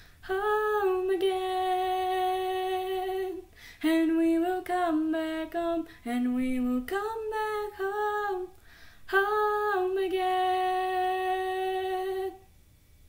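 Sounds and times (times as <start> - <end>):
woman singing unaccompanied: 0.0 - 12.5.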